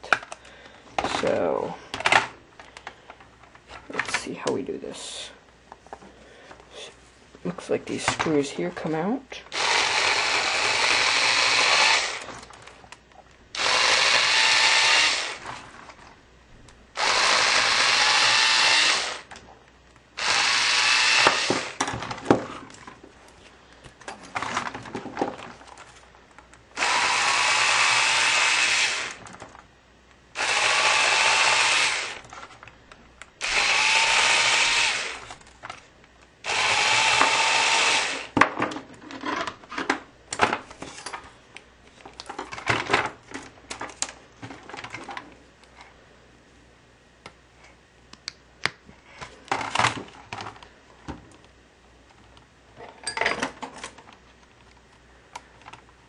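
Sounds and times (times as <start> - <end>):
electric screwdriver whirring: 9.5 - 12.3, 13.6 - 15.6, 17.0 - 19.3, 20.2 - 21.8, 26.8 - 29.3, 30.4 - 32.3, 33.4 - 35.4, 36.4 - 38.4.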